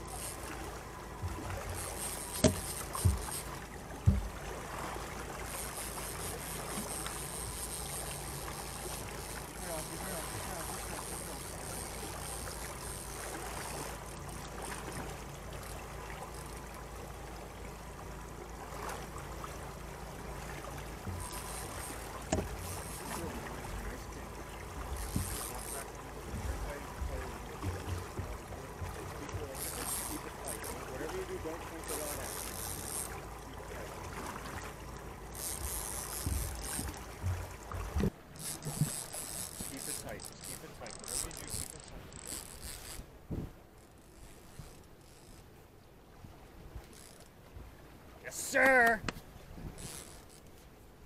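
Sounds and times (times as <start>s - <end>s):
fishing reel drag buzzing: 0.0s - 3.8s, 5.3s - 16.8s, 20.9s - 33.5s, 34.8s - 45.5s, 46.8s - 47.4s, 49.7s - 50.6s
water washing along boat hull: 0.0s - 51.0s
dull knocks: 2.3s - 3.4s, 4.0s - 4.4s.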